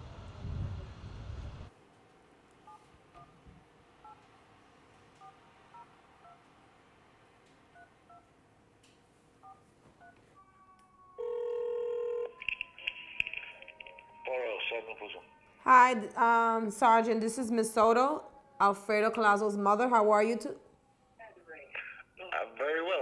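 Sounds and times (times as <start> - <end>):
phone steady tone: 2.6 - 4.3, 5.2 - 6.5, 7.7 - 8.3, 9.4 - 15.3.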